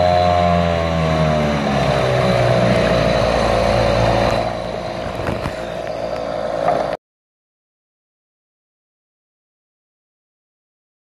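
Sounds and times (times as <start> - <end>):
outboard motor running: 0.0 - 7.0.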